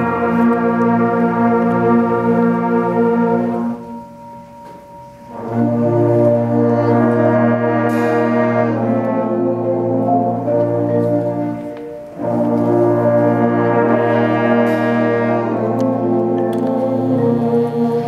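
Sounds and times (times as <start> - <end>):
concert band playing brass chords: 0.0 - 18.0.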